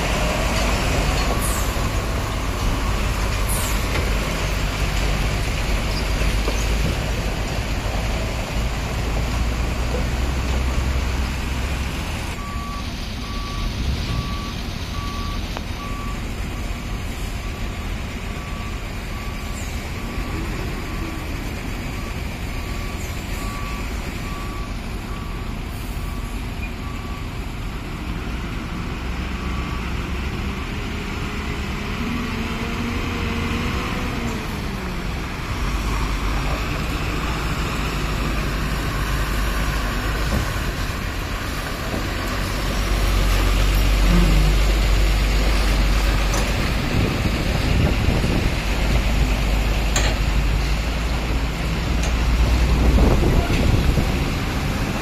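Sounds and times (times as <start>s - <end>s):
diesel truck engines rumbling: 0.0s - 55.0s
reversing alarm beeping: 12.4s - 27.4s.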